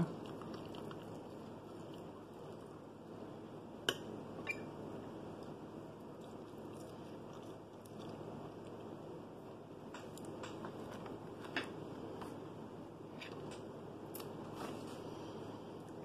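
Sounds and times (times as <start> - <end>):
chewing fries: 0.0 - 3.1, 5.3 - 9.2.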